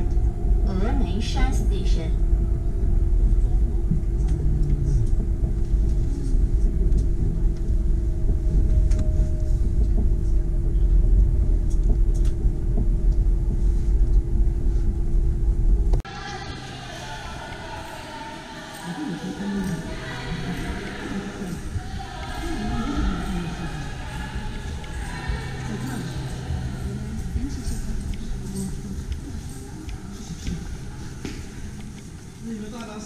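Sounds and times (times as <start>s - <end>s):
train cabin rumble: 0.0s - 16.0s
constant hum: 0.0s - 33.0s.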